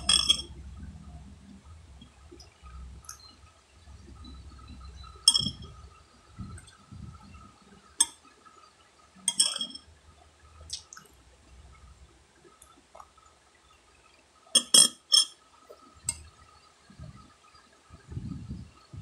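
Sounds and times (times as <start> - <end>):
metal spoon clinking on glass: 0.0 - 0.5, 5.3 - 5.7, 9.3 - 9.8, 14.6 - 15.3.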